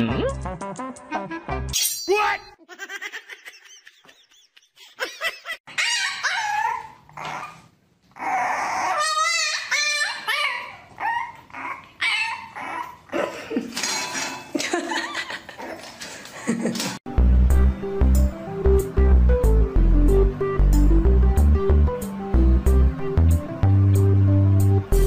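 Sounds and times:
dogs whining and yipping: 5.7s - 13.1s.

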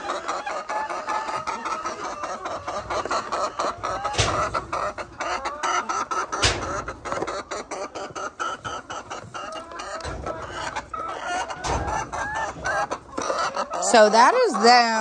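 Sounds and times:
chickens clucking: 0.0s - 15.0s
sharp knocks: 4.1s - 4.6s, 6.4s - 6.9s.

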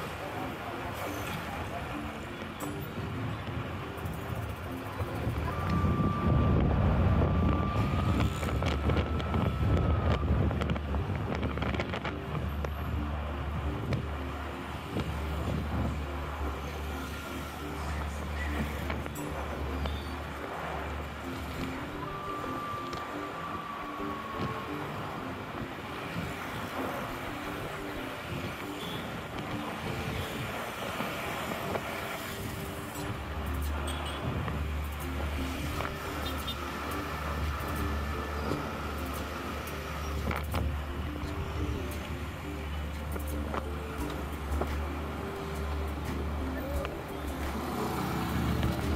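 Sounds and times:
road traffic rumble: 0.0s - 48.9s
soft melodic background music: 0.0s - 48.9s
wind on microphone: 3.0s - 48.9s
steady high tone: 12.9s - 48.6s.

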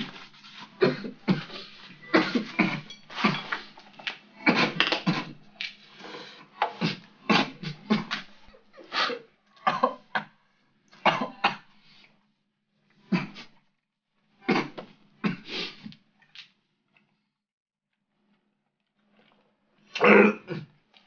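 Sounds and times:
man coughing: 0.8s - 3.7s, 6.7s - 8.3s, 8.9s - 10.2s, 20.0s - 20.7s.

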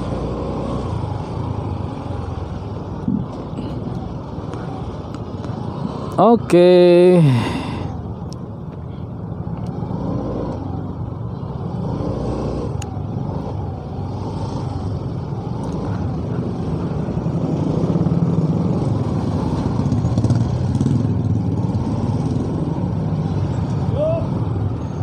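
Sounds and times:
traffic: 0.0s - 25.0s
motorcycle engine revving: 9.7s - 25.0s.

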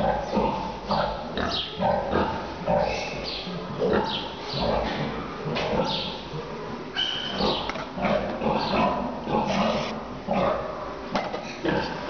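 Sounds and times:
piglet grunting: 7.4s - 10.1s.

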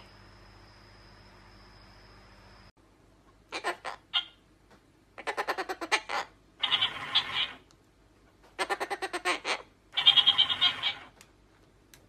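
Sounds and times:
cockatoo chattering: 3.5s - 4.4s, 5.2s - 7.6s, 8.6s - 11.1s.

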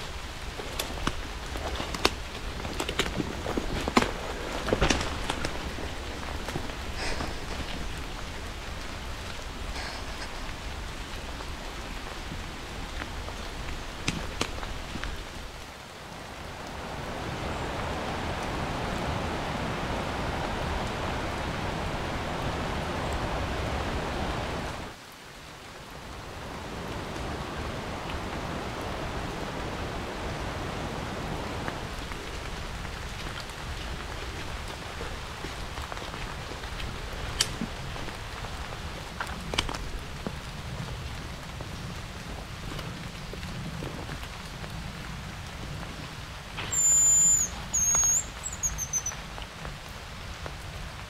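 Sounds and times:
water rushing: 0.0s - 51.0s.

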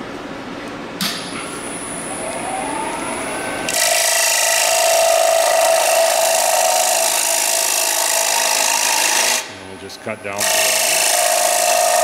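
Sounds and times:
lathe whine: 1.6s - 9.5s, 10.4s - 12.0s.

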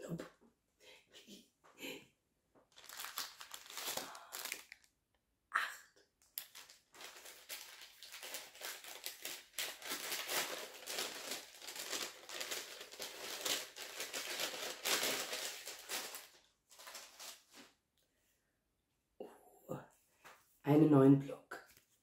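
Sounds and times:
paper bag crinkling: 2.7s - 4.9s, 6.4s - 17.8s.

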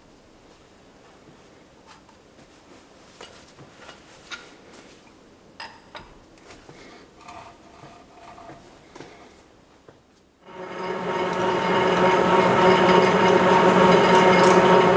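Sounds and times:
metal scraping with faint ring: 10.5s - 14.9s.

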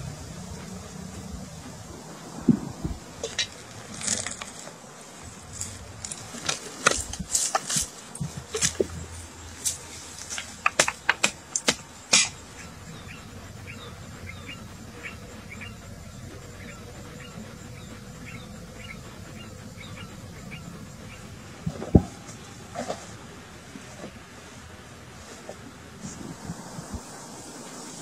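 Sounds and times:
insects buzzing: 0.0s - 28.0s.

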